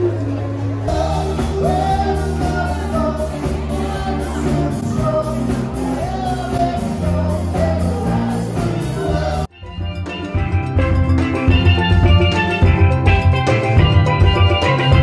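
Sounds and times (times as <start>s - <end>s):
person singing: 0.0s - 9.5s
live rock band playing: 0.0s - 15.0s.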